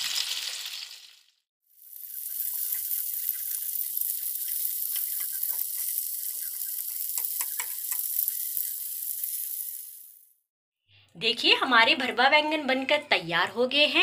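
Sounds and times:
eggplants sizzling in oil: 0:00.0 - 0:10.4
spatula scraping pan: 0:02.2 - 0:09.7.

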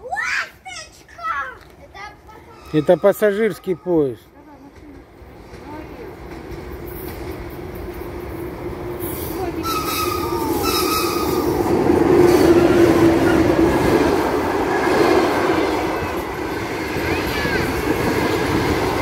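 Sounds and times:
electric train passing: 0:01.9 - 0:19.0
brief high squeals: 0:09.7 - 0:11.5.

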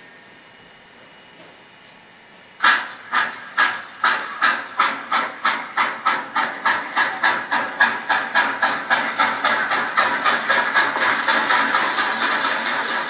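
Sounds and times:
steam locomotive chuffing: 0:02.6 - 0:13.0.

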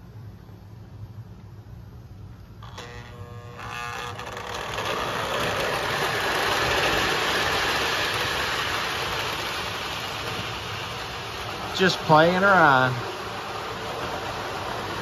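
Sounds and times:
low electrical hum: 0:00.0 - 0:15.0
model train wheels on track: 0:00.9 - 0:15.0.

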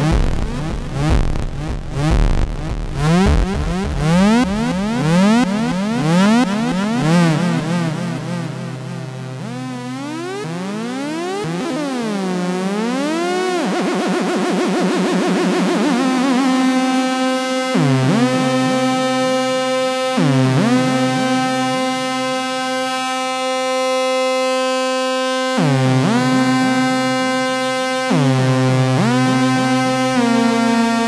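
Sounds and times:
buzzy synthesizer tone: 0:00.0 - 0:13.3.

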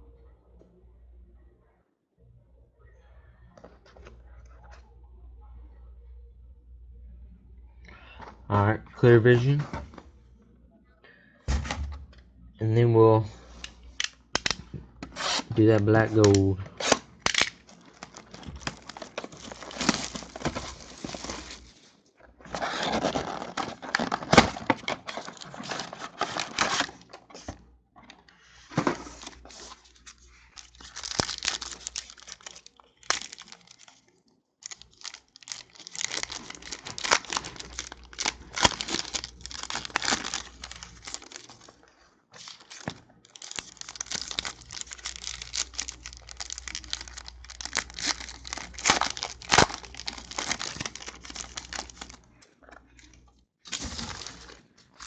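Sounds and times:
plastic wrappers crinkling and tearing: 0:13.5 - 0:27.5, 0:28.1 - 0:55.0.

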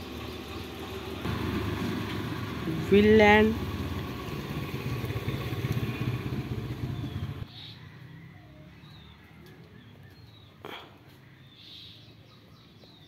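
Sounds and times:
vehicle engine rumbling: 0:00.0 - 0:07.6.

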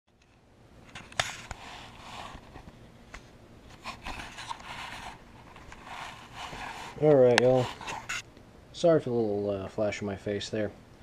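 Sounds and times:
camera handling rustling and scraping: 0:00.9 - 0:08.2.

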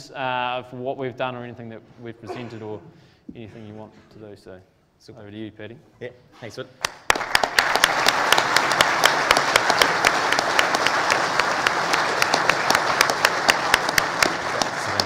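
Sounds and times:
audience applauding: 0:06.8 - 0:15.0.

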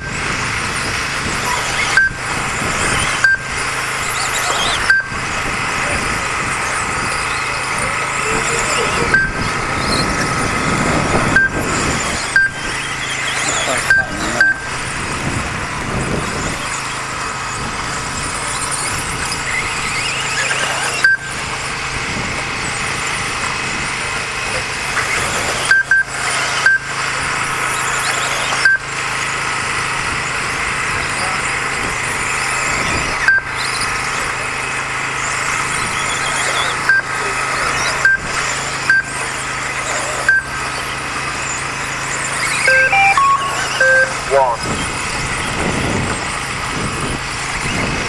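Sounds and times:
electric motors whining: 0:00.0 - 0:48.0
short electronic beep: 0:01.5 - 0:02.3, 0:03.2 - 0:05.3, 0:07.2 - 0:10.2, 0:11.2 - 0:14.8, 0:19.9 - 0:21.4, 0:25.7 - 0:27.0, 0:28.5 - 0:28.8, 0:33.3 - 0:33.5, 0:36.9 - 0:39.2, 0:40.0 - 0:41.0, 0:42.3 - 0:44.9.

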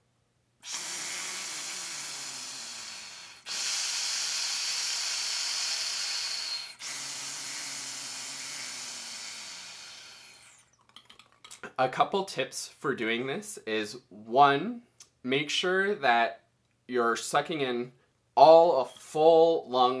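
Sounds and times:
breaths through a narrow straw: 0:00.6 - 0:10.7.

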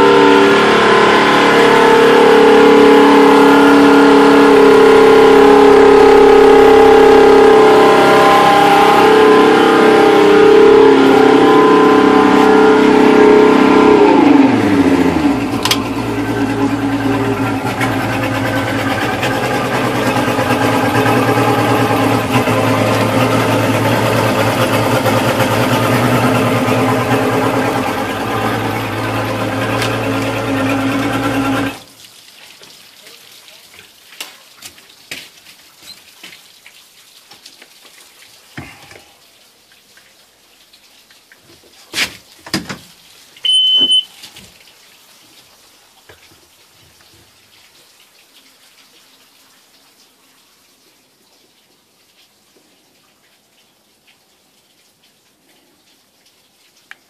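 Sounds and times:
outboard motor running: 0:00.0 - 0:31.8
short high beep: 0:43.4 - 0:44.2.

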